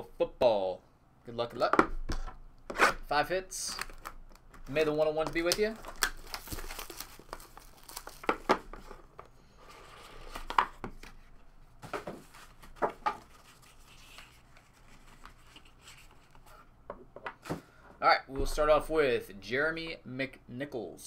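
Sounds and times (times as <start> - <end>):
shrink wrap tearing and crinkling: 3.7 - 8.5.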